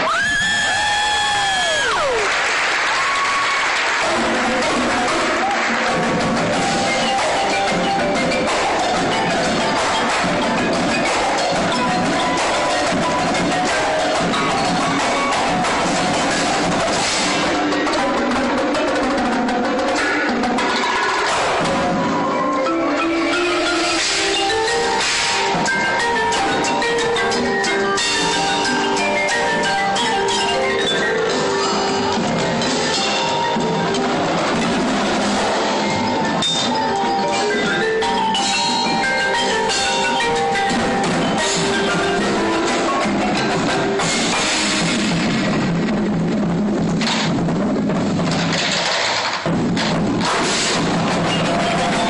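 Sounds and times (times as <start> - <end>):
marimbas and mallet percussion: 0.0 - 48.6, 49.8 - 52.0
marching bass drums: 4.0 - 20.5, 40.8 - 48.6, 49.4 - 52.0.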